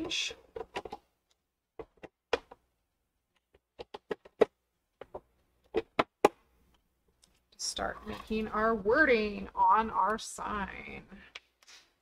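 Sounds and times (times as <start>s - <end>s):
plastic clicks and knocks: 0.5s - 1.1s, 3.3s - 6.4s.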